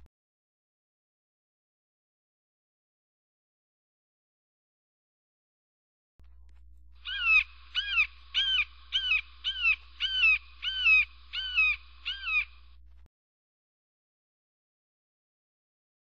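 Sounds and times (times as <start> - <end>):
faint low hum: 6.2 - 13.1.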